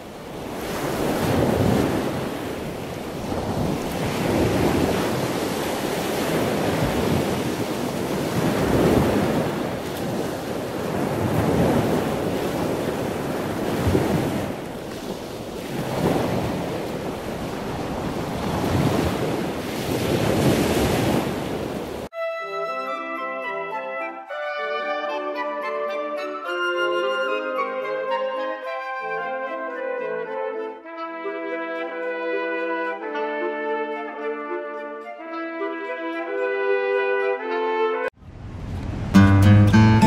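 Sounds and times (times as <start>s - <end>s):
wind gusting across microphone: 0.0s - 22.1s, 38.2s - 39.2s.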